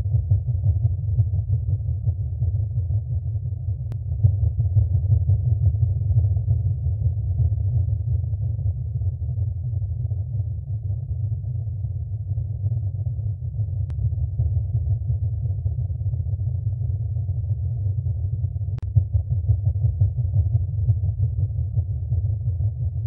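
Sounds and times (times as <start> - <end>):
deep steady rumble: 0.0 - 23.0.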